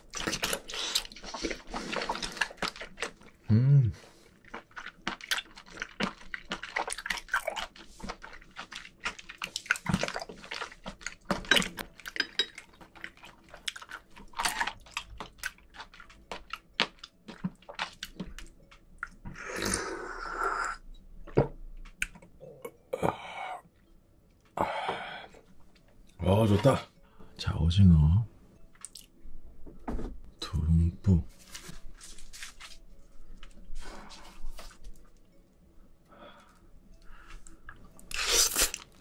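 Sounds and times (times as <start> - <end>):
wet chewing: 0.0 - 3.5, 4.1 - 19.9, 36.4 - 39.0.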